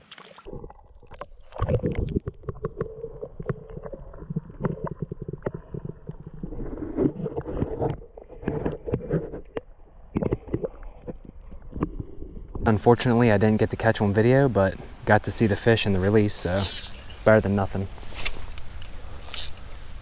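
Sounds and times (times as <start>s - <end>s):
muffled underwater rumble: 0.5s - 12.7s
small underwater knocks and clicks: 7.2s - 12.7s.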